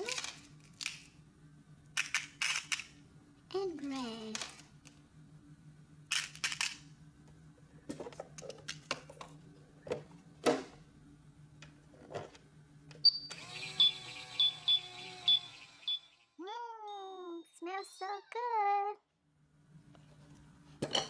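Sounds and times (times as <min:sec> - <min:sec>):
toy beep: 0:13.1 - 0:16.2.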